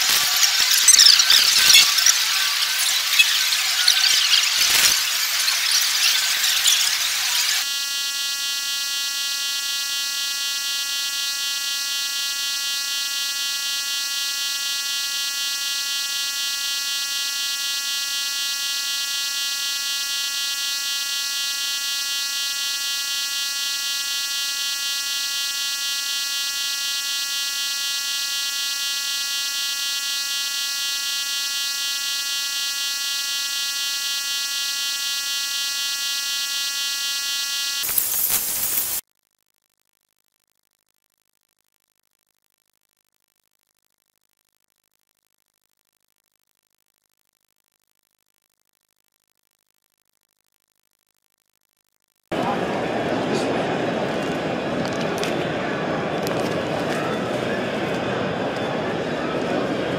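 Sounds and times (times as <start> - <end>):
electronic buzzing tone: 0.0 - 39.0.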